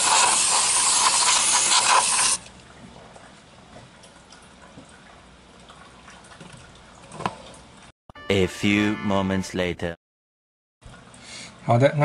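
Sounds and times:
aerosol spray hissing: 0.0 - 2.4.

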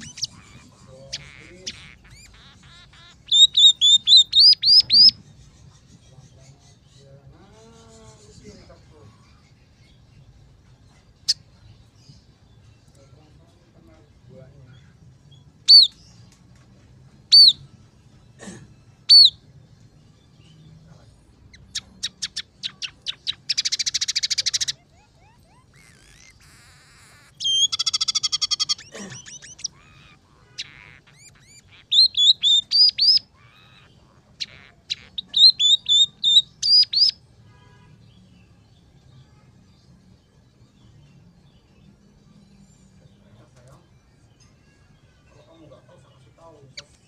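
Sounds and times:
bird singing: 0.0 - 16.4, 17.2 - 17.7, 19.1 - 19.4, 20.0 - 39.0.

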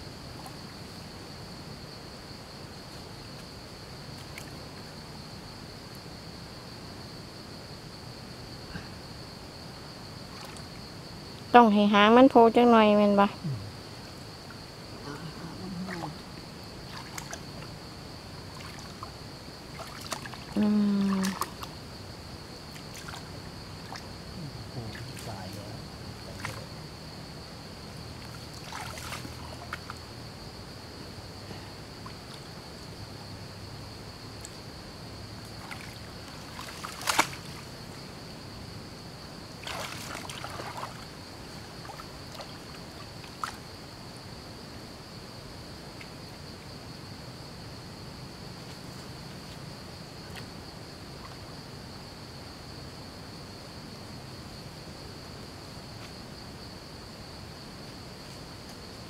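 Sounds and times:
hands splashing in muddy water: 19.7 - 21.7, 28.2 - 30.0, 35.6 - 37.6, 39.6 - 41.1.

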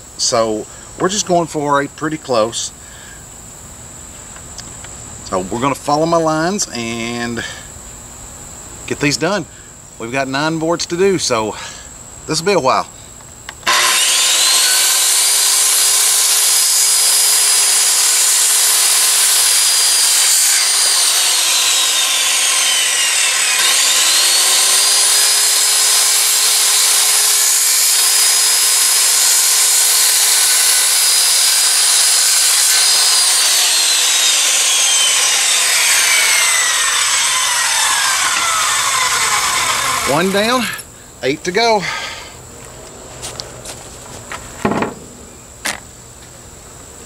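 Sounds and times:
circular saw cutting wood: 13.6 - 40.9.

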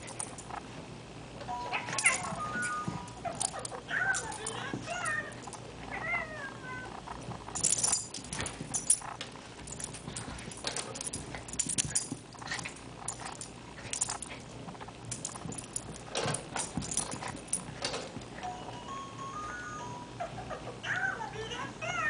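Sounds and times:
light jingling: 1.9 - 5.6, 7.5 - 18.4
animals scuffling and snuffling: 6.9 - 18.5.

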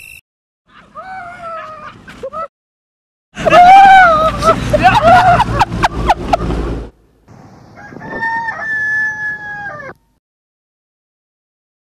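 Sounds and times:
rooster crowing: 7.7 - 10.2.

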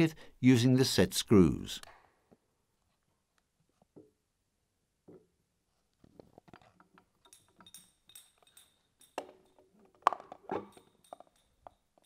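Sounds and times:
metal parts clinking and knocking: 6.2 - 12.0.

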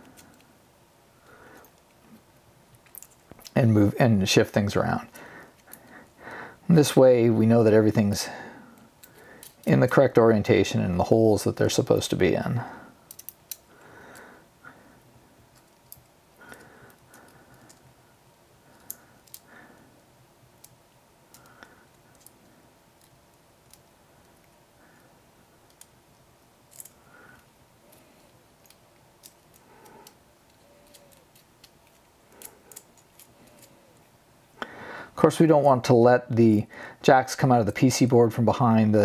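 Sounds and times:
small clicks and rubbing: 1.6 - 3.6, 13.1 - 13.7, 15.5 - 17.9, 18.7 - 19.5, 20.6 - 24.6, 25.6 - 34.1.

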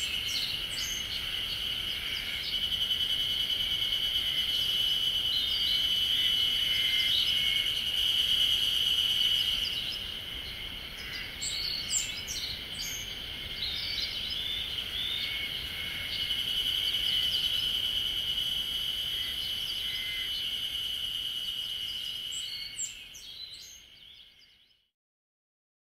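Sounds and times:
bird chirps: 0.0 - 3.0
insects chorus: 0.0 - 24.6.

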